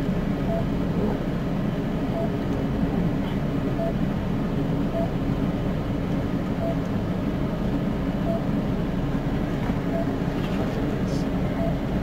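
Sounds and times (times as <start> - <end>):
cardiac monitor beeping: 0.5 - 0.7, 2.1 - 2.4, 3.8 - 4.0, 4.9 - 5.2, 6.6 - 6.8, 8.2 - 8.5, 9.9 - 10.2, 11.5 - 11.8.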